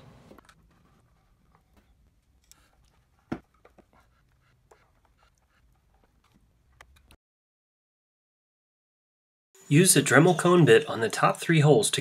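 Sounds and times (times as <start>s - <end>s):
screwdriver scratching and clicking: 2.4s - 3.0s.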